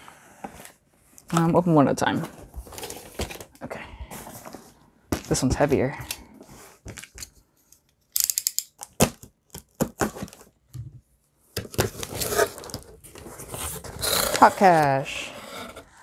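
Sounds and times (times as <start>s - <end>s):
packing tape being slit and torn: 8.2s - 10.4s.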